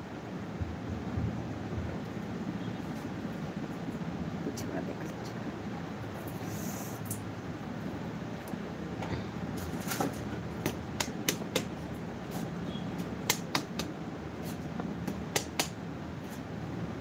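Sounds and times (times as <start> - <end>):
steady low hum: 0.0 - 17.0
sharp clicks and taps: 10.6 - 11.7, 13.2 - 13.9, 14.8 - 15.8.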